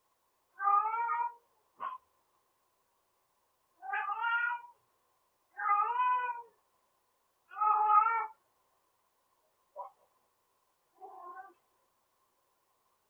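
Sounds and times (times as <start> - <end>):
cat meowing: 0.6 - 2.0, 3.8 - 4.8, 5.5 - 6.6, 7.5 - 8.4, 11.0 - 11.6.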